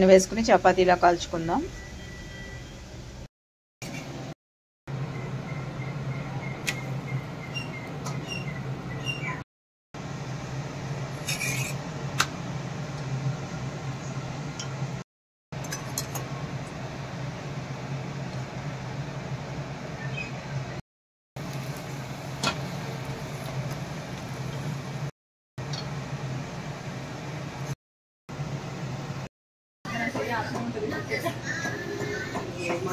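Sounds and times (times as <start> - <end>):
flatbread sizzling in oil: 21.4 - 25.1.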